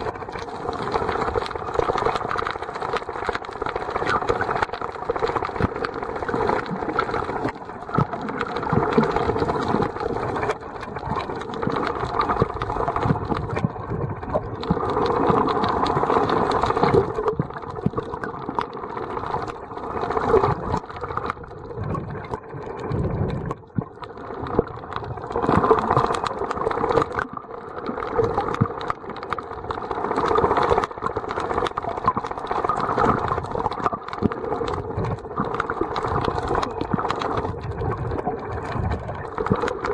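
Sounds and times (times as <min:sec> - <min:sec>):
underwater water swishing: 0:00.0 - 0:39.9.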